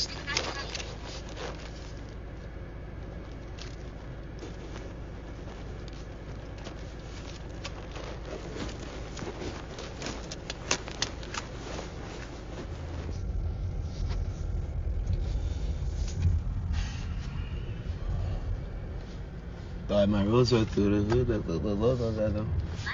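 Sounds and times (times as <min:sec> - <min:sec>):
car interior rumble: 0:00.0 - 0:22.9
paper banknotes rustling: 0:04.5 - 0:12.8.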